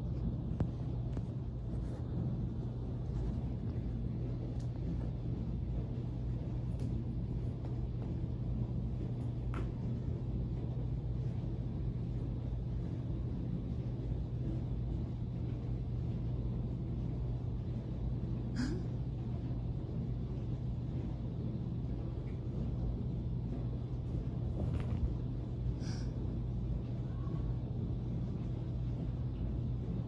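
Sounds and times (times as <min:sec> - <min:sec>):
low room hum: 0:00.0 - 0:30.0.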